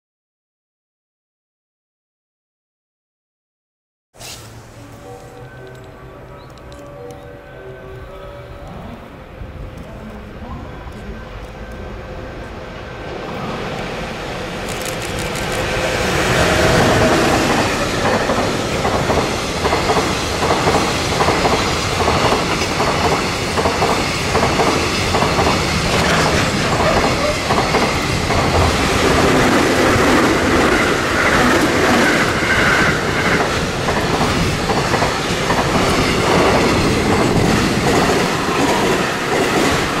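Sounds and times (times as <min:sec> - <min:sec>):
electric train humming: 0:04.2 - 0:40.0
electric train whine: 0:04.3 - 0:40.0
freight train wheels clacking: 0:13.4 - 0:40.0.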